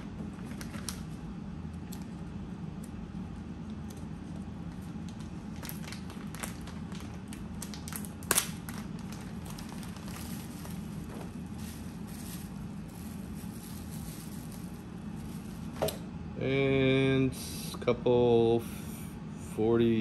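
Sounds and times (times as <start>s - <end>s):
steady low hum: 0.0s - 20.0s
plastic and bubble wrap crinkling: 0.4s - 1.2s, 4.7s - 15.8s.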